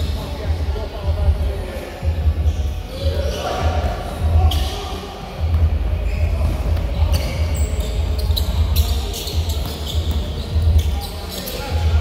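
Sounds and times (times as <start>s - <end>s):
sneaker squeaks on floor: 4.4s - 12.0s.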